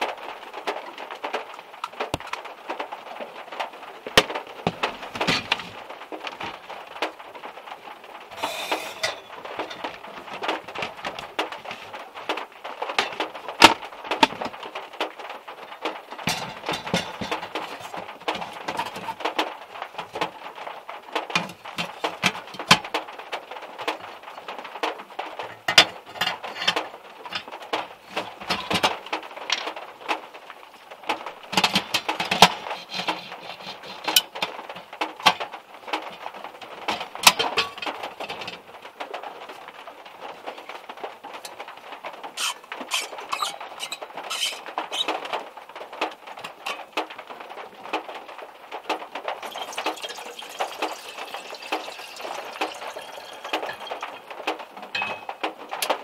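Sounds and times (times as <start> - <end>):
rain on car roof: 0.0 - 56.0
metal kettle set down: 8.3 - 11.2, 16.3 - 19.1, 49.4 - 54.3, 54.9 - 55.4
metal pan support clatter: 8.3 - 11.9, 16.2 - 19.4, 25.4 - 28.9, 31.5 - 38.6, 42.4 - 45.2, 49.4 - 55.5.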